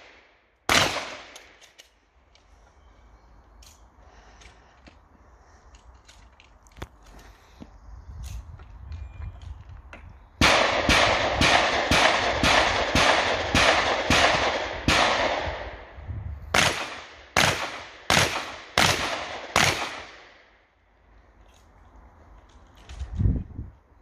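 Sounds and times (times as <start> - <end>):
shotgun shots echoing: 0.0 - 1.6, 10.4 - 15.9, 16.5 - 20.4.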